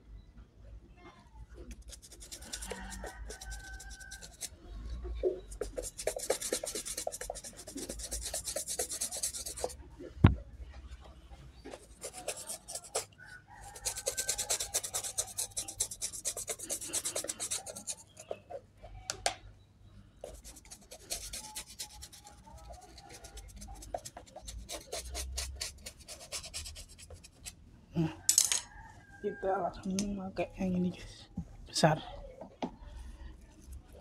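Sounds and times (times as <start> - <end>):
toothbrush scrubbing shoe sole: 1.7 - 4.5, 5.5 - 9.8, 11.9 - 18.4, 20.2 - 27.4.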